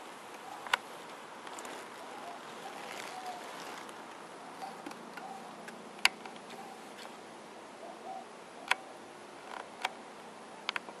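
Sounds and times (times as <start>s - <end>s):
faint steady hiss: 0.0s - 11.0s
sharp clicks: 10.7s - 11.0s.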